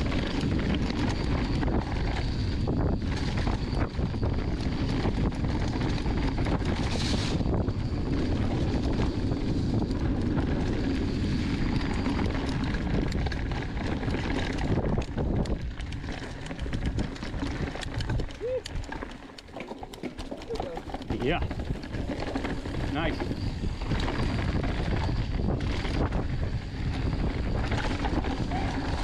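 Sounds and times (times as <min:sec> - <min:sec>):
wind buffeting microphone: 0:00.0 - 0:19.2, 0:20.2 - 0:29.0
tyres rolling over dirt: 0:00.0 - 0:29.0
bike rattling clicks: 0:08.1 - 0:29.0.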